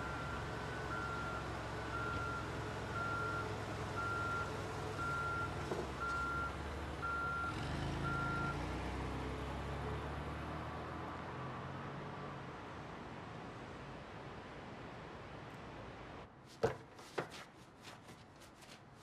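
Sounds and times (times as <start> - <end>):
vehicle warning beeper: 0.0 - 8.6
knock: 16.6 - 17.3.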